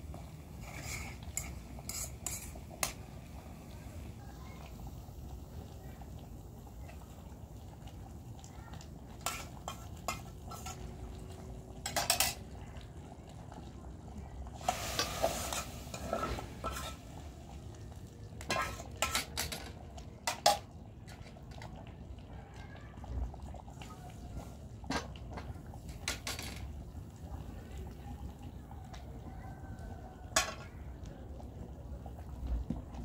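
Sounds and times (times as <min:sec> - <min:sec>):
metal spoon scraping frying pan: 0:00.6 - 0:03.0, 0:09.2 - 0:10.9, 0:11.8 - 0:12.4, 0:14.6 - 0:17.0, 0:18.5 - 0:19.7.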